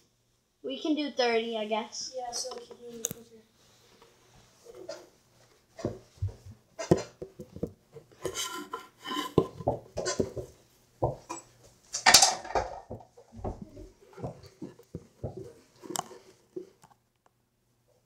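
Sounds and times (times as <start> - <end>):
knocks and thumps: 5.8 - 8.4, 9.3 - 11.4, 12.0 - 15.6.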